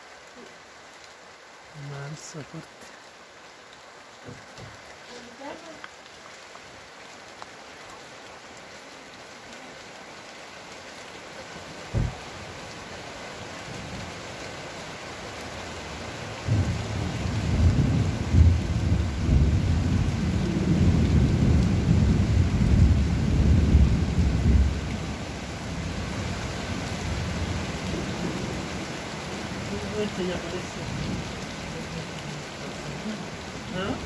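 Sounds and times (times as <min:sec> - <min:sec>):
steady rain: 0:00.0 - 0:34.0
thunder rumbling: 0:11.9 - 0:12.2, 0:16.4 - 0:25.1.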